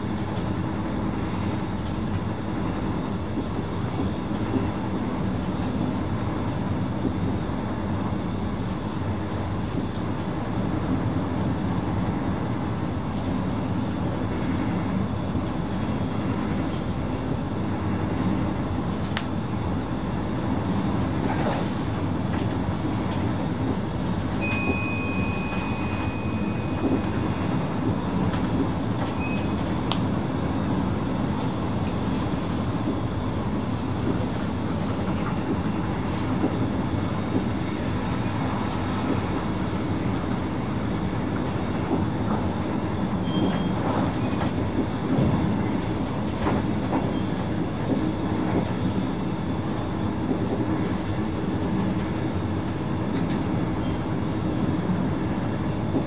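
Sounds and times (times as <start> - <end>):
wheels rumbling on rail: 0.0 - 56.0
brief high tone: 24.4 - 27.0.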